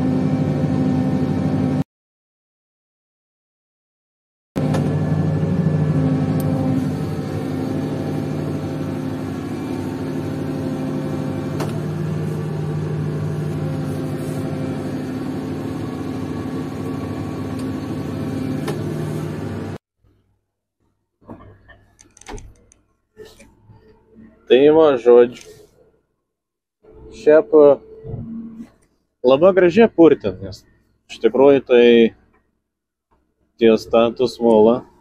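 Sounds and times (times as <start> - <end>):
tractor engine running under load: 0.0 - 1.8, 4.6 - 19.8.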